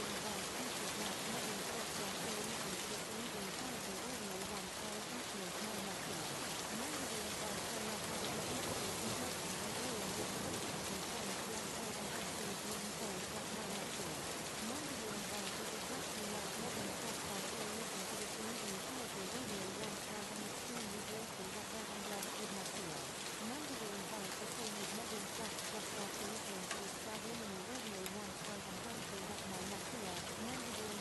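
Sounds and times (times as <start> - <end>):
rain-like hiss: 0.0 - 31.0.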